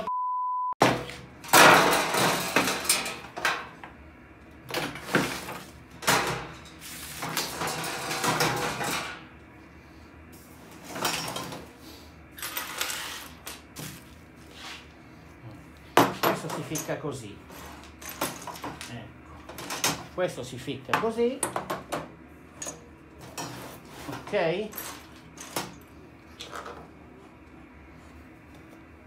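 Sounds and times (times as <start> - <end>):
metal baskets knocking and clattering: 0.8 - 3.8, 4.7 - 9.2.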